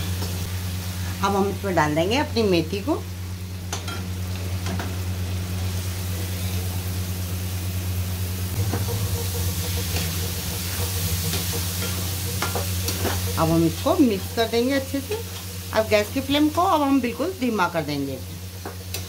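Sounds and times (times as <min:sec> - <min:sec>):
low hum: 0:00.0 - 0:18.5
spices sizzling in a pan: 0:00.0 - 0:19.0
metal spatula scraping a pan: 0:09.1 - 0:14.3.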